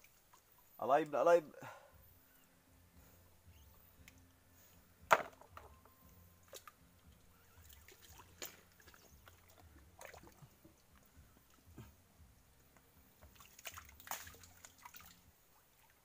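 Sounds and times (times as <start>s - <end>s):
water and mud sloshing: 7.5s - 10.9s, 13.2s - 16.0s.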